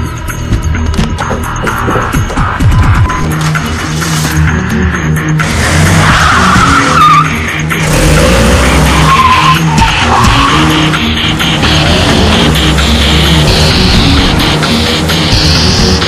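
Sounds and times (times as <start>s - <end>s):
electronic music with low beat: 0.0s - 16.0s
car tyres squealing: 5.4s - 16.0s.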